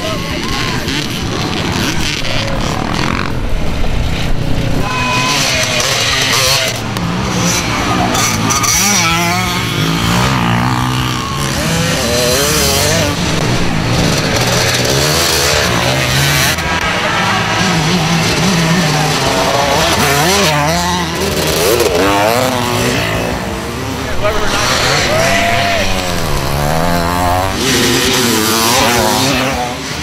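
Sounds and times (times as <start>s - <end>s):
dirt bike engines revving: 0.0s - 30.0s.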